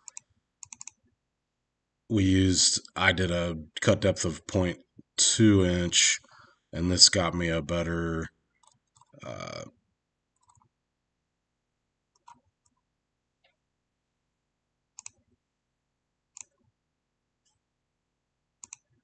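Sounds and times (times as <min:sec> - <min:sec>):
computer mouse clicks: 0:00.0 - 0:01.0, 0:08.6 - 0:09.2, 0:10.4 - 0:10.7, 0:12.1 - 0:12.8, 0:15.0 - 0:15.2, 0:16.3 - 0:16.7, 0:18.6 - 0:19.0.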